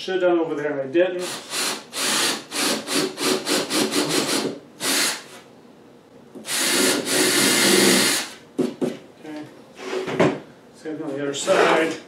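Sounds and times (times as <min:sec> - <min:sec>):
cordless drill boring into wood: 0:01.2 - 0:05.2, 0:06.5 - 0:08.4.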